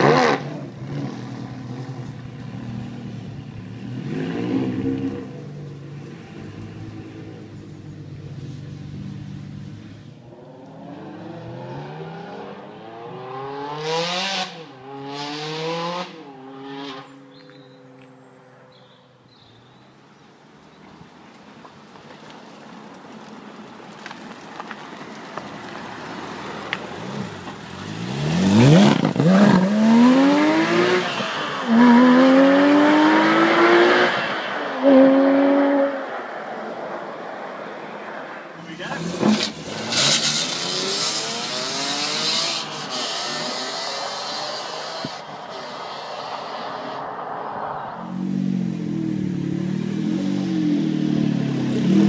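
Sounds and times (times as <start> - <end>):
loud car accelerating through gears: 0.0 - 2.1, 3.7 - 5.4, 9.8 - 17.3, 27.0 - 36.2, 38.8 - 52.0
car revving in middle distance: 0.0 - 18.0, 26.9 - 36.3, 38.7 - 52.0.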